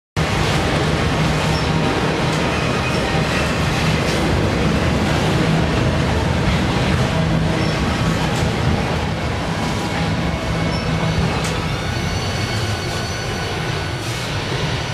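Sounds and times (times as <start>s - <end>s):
freight train rumbling past: 0.2s - 14.9s
steel wheels rattling on rails: 0.2s - 14.9s
faint high squeals: 10.5s - 14.0s.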